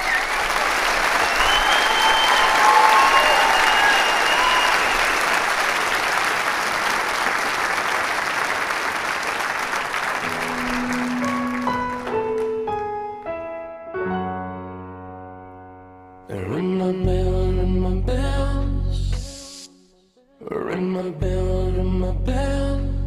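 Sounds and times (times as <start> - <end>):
audience applauding: 0.0 - 13.2
slow piano intro: 10.0 - 16.5.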